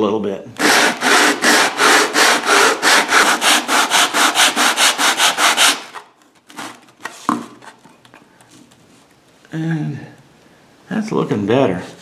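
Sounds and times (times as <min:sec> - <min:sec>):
foam sanding on sandpaper: 0:00.6 - 0:06.0.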